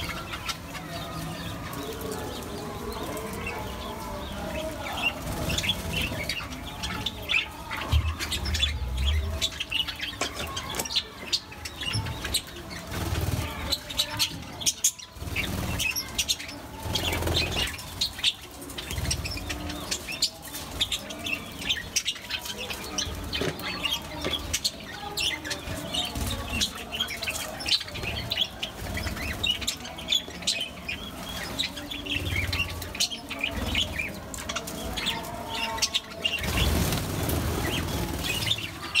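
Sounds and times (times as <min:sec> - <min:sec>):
wings fluttering: 0:36.3 - 0:39.0.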